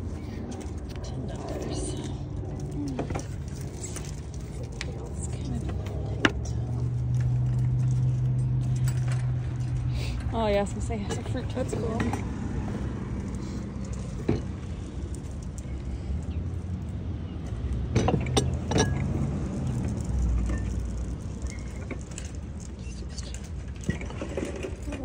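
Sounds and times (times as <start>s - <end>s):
small items clinking: 0.0s - 10.0s, 18.0s - 25.0s.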